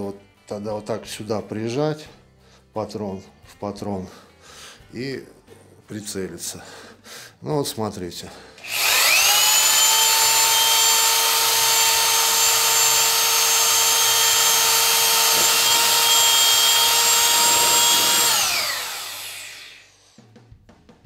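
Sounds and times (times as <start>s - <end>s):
motor spinning down: 8.6s - 19.9s
rotary hammer drilling into wood: 8.6s - 20.0s.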